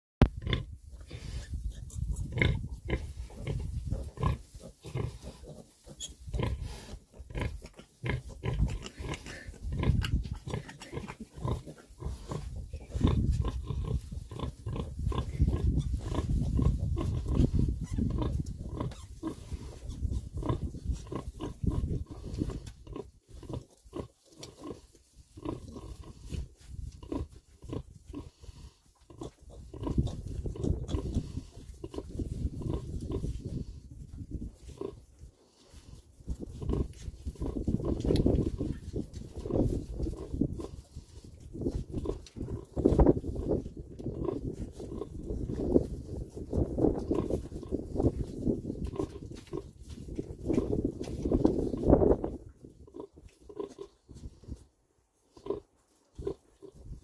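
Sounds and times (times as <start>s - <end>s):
sow grunting: 2.0s - 24.8s.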